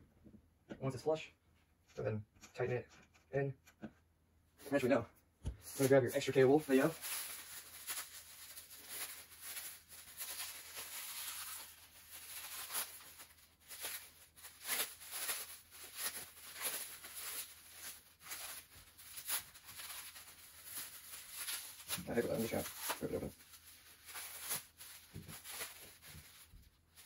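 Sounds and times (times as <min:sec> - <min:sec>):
fiber blanket rustling and tearing: 0:05.6 - 0:27.0.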